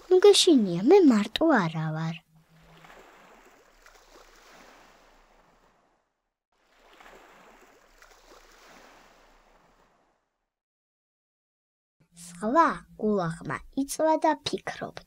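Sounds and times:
faint sea waves washing: 0.0 - 10.1.

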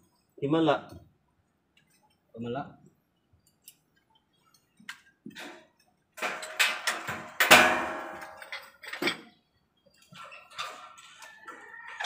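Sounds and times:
steel framing clanking and ringing: 6.2 - 9.3.

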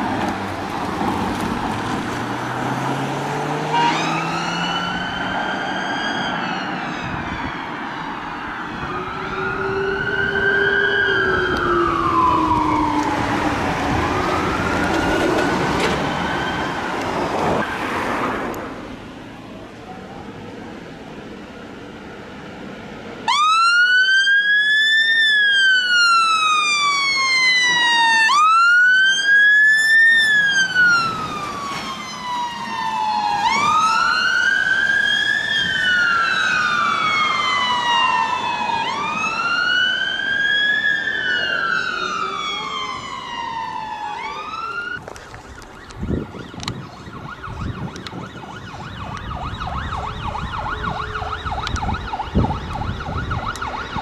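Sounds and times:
fire engine siren wailing: 0.0 - 18.4, 21.4 - 54.0
traffic noise: 0.0 - 54.0
distant siren wavering: 2.1 - 18.6, 23.1 - 54.0.

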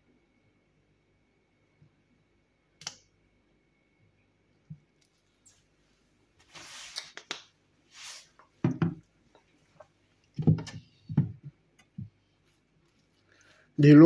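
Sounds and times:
rustling scrapes: 6.4 - 7.1, 7.9 - 8.4
plastic kitchenware knocking: 8.6 - 9.0.

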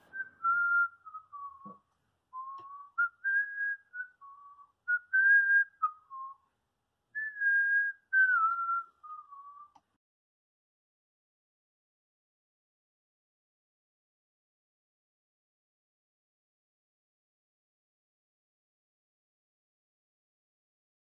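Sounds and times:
man whistling a tune: 0.0 - 1.8, 2.4 - 6.4, 7.2 - 9.8.

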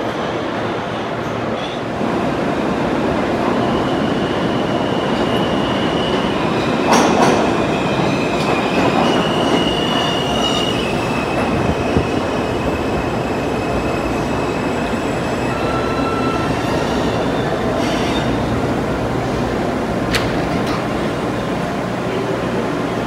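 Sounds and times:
subway train rumbling: 0.0 - 23.0
high wheel squeal: 7.6 - 18.4.

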